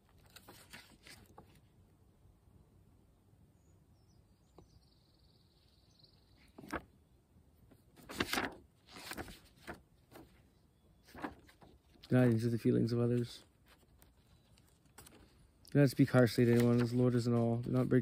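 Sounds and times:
book pages turning: 0.0s - 1.6s, 6.4s - 6.9s, 7.7s - 10.4s, 11.0s - 18.0s
paper rustling: 0.0s - 1.7s, 6.4s - 6.9s, 7.7s - 18.0s.

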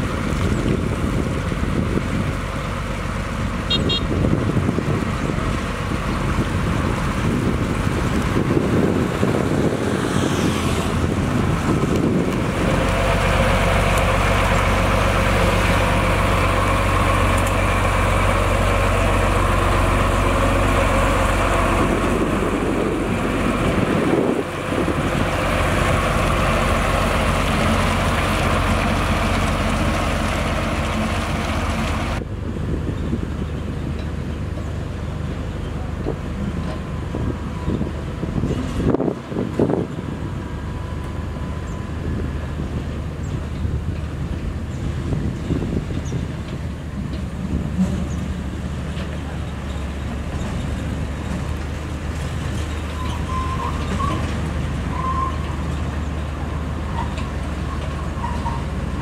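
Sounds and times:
diesel engine droning: 0.0s - 59.0s
tyres on wet gravel: 5.0s - 32.2s.

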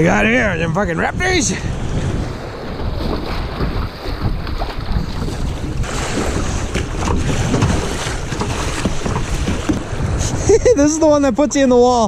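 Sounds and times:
wind buffeting the microphone: 0.0s - 12.0s
paddle dipping into water: 2.1s - 10.4s.

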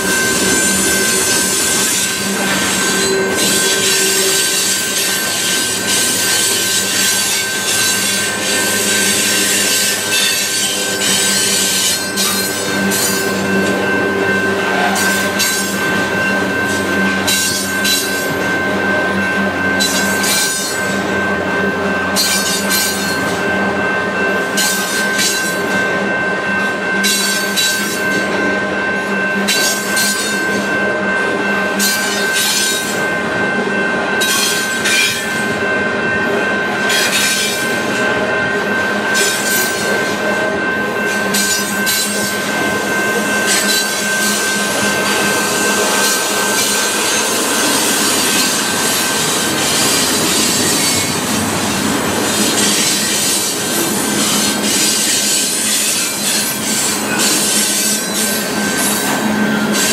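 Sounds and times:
high wheel squeal: 0.0s - 23.5s, 39.0s - 59.9s
train wheels rumbling on rail: 0.0s - 59.9s.

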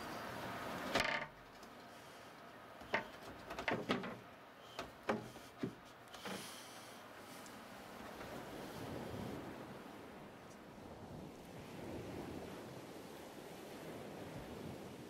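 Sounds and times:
scattered clicks and knocks: 2.8s - 6.4s.

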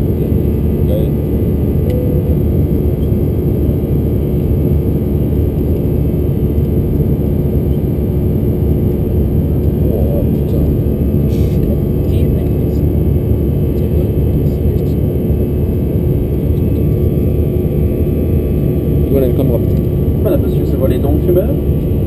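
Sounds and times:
airplane cabin roar: 0.0s - 22.0s
faint steady hum: 0.0s - 22.0s.

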